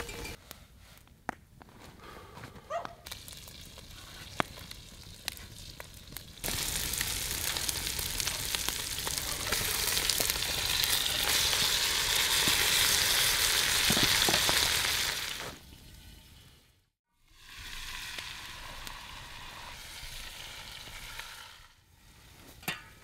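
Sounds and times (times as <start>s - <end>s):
meat sizzling in fat: 3.1s - 15.6s, 17.2s - 22.3s.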